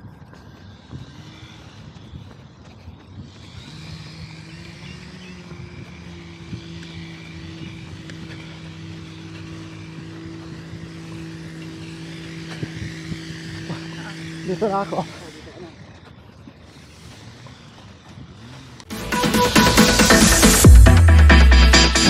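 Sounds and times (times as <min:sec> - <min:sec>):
motor running steadily: 0:00.0 - 0:22.0
rushing background noise: 0:00.0 - 0:22.0.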